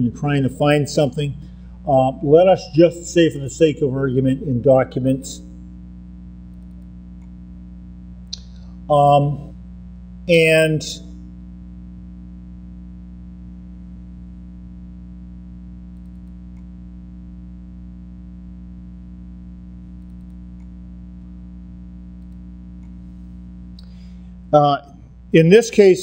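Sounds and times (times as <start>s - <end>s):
electrical mains hum: 0.0s - 26.0s
faint clicks: 6.5s - 7.4s, 8.2s - 8.7s, 15.9s - 16.7s, 20.0s - 20.8s, 22.2s - 23.0s.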